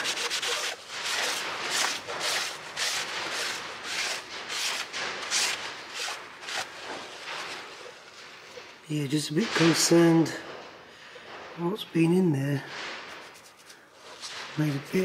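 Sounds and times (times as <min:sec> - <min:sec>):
cloth rag rubbing on metal: 0:00.0 - 0:08.0, 0:13.1 - 0:14.9.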